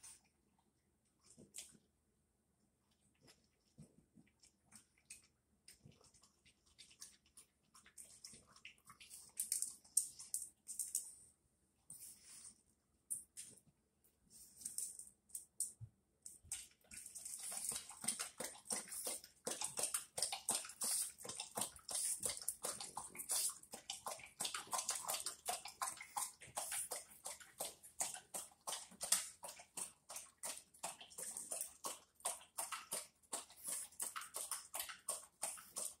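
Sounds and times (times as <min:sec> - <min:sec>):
dog lapping water: 0:03.1 - 0:10.1, 0:16.4 - 0:36.0.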